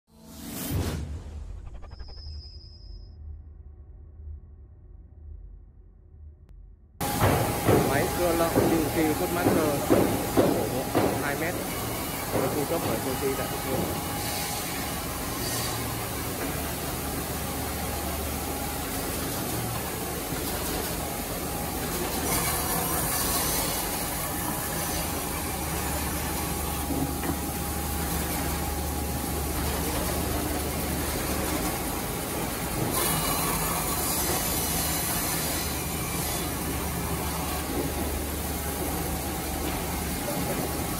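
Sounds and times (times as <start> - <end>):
saw cutting wood hiss: 7.0 - 16.7, 32.9 - 36.7
band saw motor hum and whine: 7.0 - 40.9.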